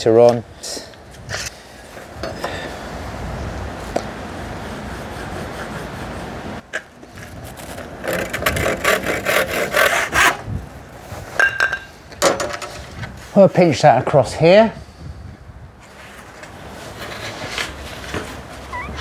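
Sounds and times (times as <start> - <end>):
steady rubbing noise: 4.4 - 6.6
handsaw cutting wood: 8.1 - 10.4.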